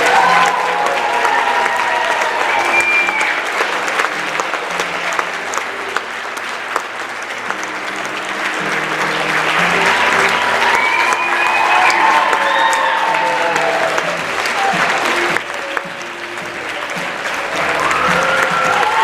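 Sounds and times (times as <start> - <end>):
audience applauding: 0.0 - 19.0
music playing: 0.0 - 19.0.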